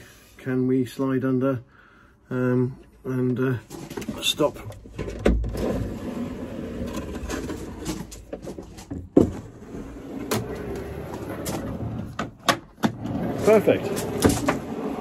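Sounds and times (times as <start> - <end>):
drawer knocks and clunks: 7.8 - 9.6, 13.8 - 14.8
metal drawer sliding on runners: 12.8 - 15.0.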